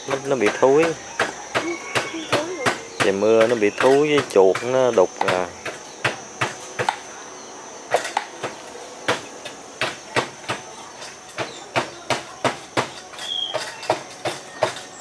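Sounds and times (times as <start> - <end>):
knife chopping on cutting board: 11.4 - 14.8.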